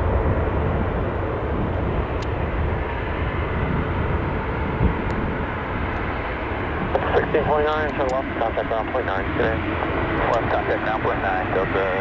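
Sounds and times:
jet airliner taxiing: 0.0s - 12.0s.

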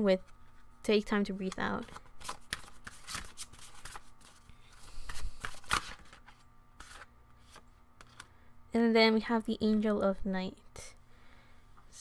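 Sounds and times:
cards being shuffled: 1.4s - 8.3s.

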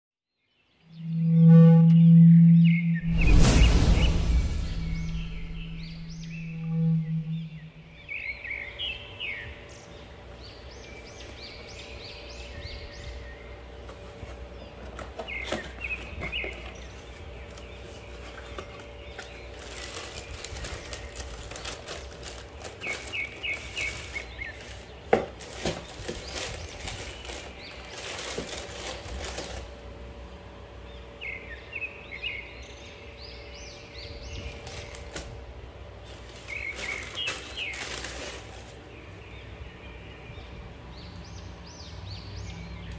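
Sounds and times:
small birds chirping: 5.0s - 42.9s
tissue paper crackling: 17.8s - 29.8s, 36.0s - 38.9s.

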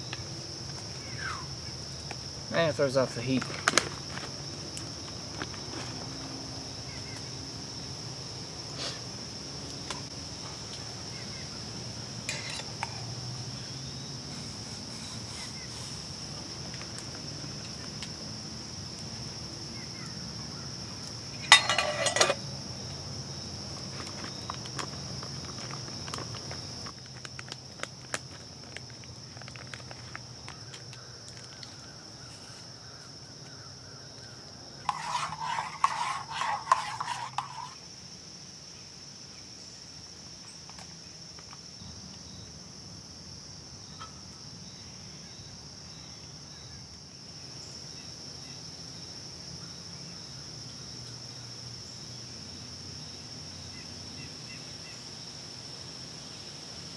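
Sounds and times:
metal camp cup clinks: 21.5s - 22.4s.

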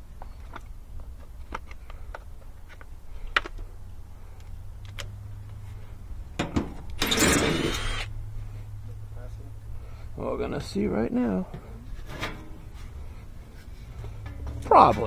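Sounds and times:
impact driver running: 7.0s - 8.1s.

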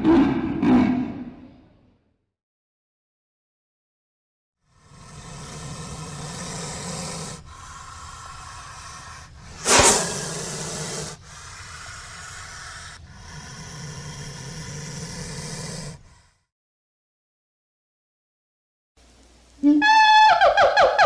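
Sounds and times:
snake hissing: 4.6s - 16.5s.

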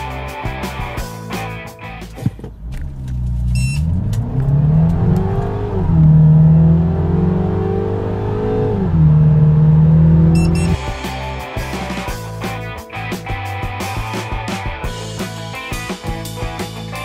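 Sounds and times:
car engine accelerating hard: 2.5s - 10.8s.

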